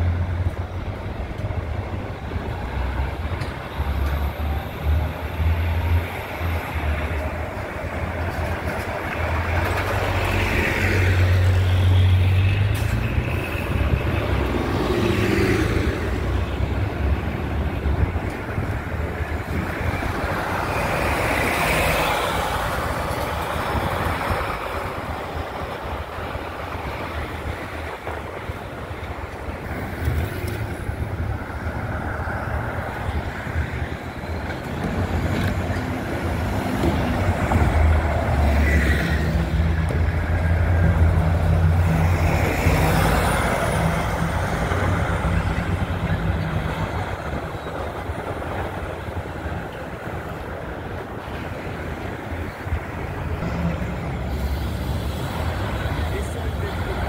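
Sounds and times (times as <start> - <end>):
buses passing: 0.0 - 57.0
traffic noise: 0.0 - 57.0.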